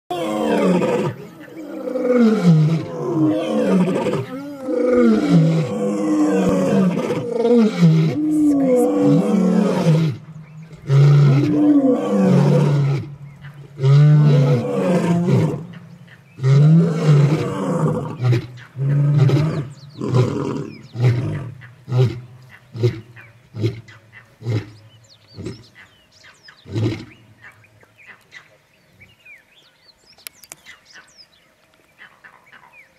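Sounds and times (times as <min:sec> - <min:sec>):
lion roaring and grunting: 0:00.1 - 0:13.1, 0:13.7 - 0:15.7, 0:16.4 - 0:22.2.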